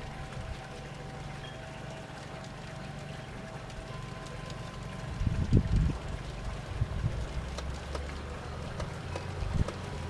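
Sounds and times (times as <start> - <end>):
wheels clicking on rails: 0.0 - 10.0
wind buffeting microphone: 5.0 - 7.7, 8.8 - 10.0.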